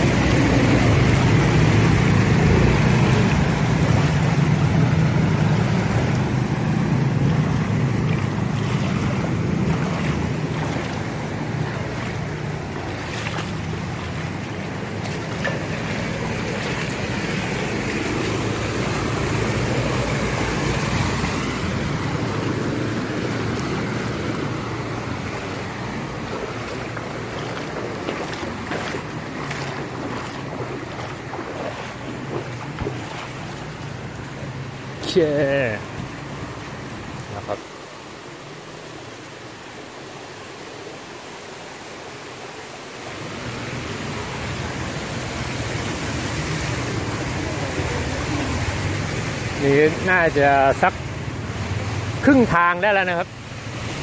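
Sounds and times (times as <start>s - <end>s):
vehicle engine rumbling: 0.0s - 37.4s
water sloshing and splashing: 0.0s - 39.9s, 41.0s - 54.0s.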